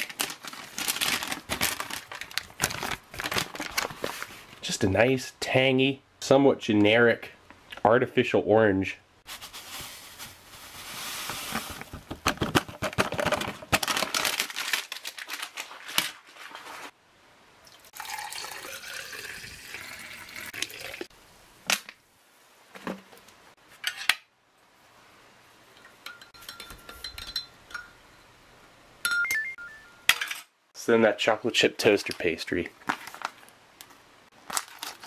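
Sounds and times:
water pouring: 0:17.6 - 0:21.1
glass ringing: 0:25.8 - 0:28.4, 0:29.0 - 0:30.2.

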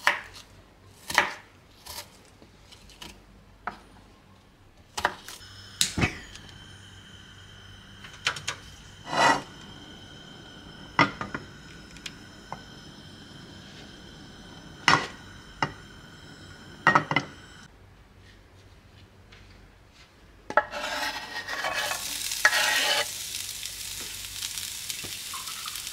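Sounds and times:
faint high hum: 0:05.3 - 0:18.6.

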